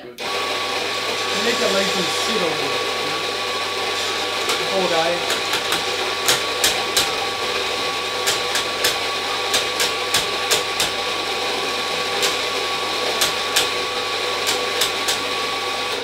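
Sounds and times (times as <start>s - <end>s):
coffee grinder motor hum: 0.2s - 16.0s
sharp irregular clicks: 8.2s - 11.0s.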